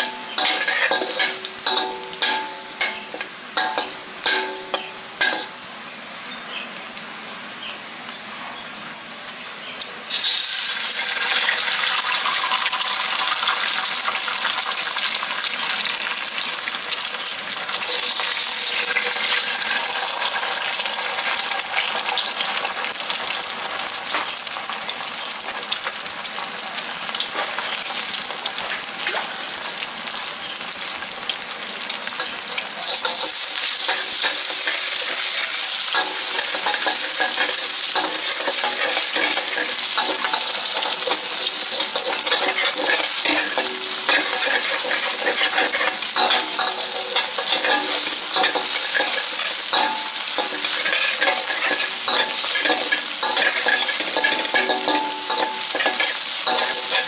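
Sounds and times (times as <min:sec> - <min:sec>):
metal spatula scraping wok: 0:00.0 - 0:05.6, 0:32.2 - 0:57.0
food sizzling in oil: 0:00.0 - 0:57.0.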